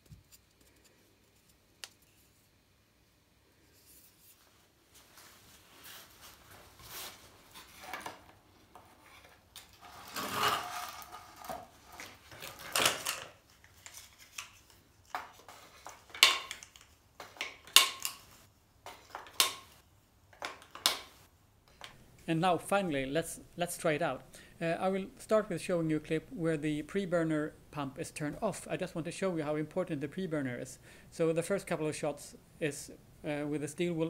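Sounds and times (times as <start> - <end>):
tubes rubbing and rattling: 5.8 - 14.2.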